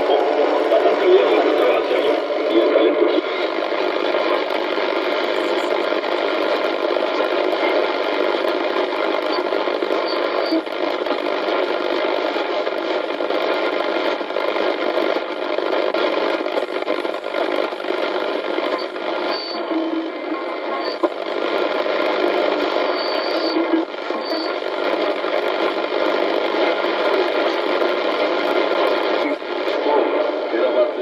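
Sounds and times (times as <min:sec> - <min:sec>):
shortwave radio static: 0:00.0 - 0:31.0
faint steady whistles: 0:08.9 - 0:10.7, 0:18.6 - 0:20.2, 0:22.1 - 0:25.1.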